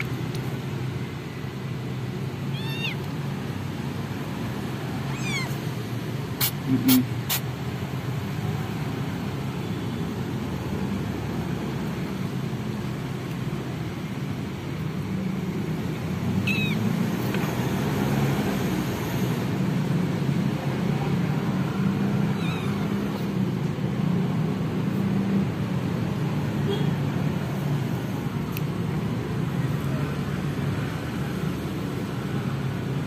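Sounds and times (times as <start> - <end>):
engines and road traffic rumble: 0.0 - 33.0
kitten mewing: 2.4 - 3.4, 4.9 - 7.5, 16.4 - 16.9, 22.2 - 23.4.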